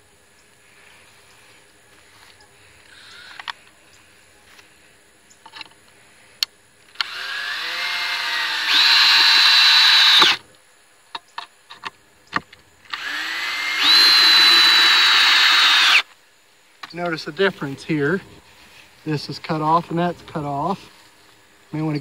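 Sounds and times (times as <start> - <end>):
cordless drill driving screws: 7.0 - 10.4, 12.9 - 16.1.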